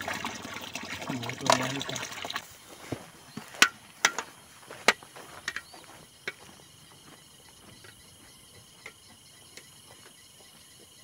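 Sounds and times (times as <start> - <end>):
faint high insect drone: 1.0 - 11.0
footsteps crunching on pine needles: 2.6 - 7.8.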